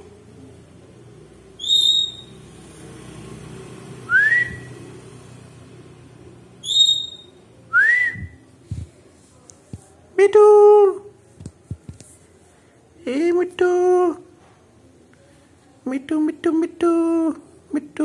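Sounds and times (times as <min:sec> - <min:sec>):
short whistles: 0:01.6 - 0:02.4, 0:04.1 - 0:04.7, 0:06.6 - 0:08.4.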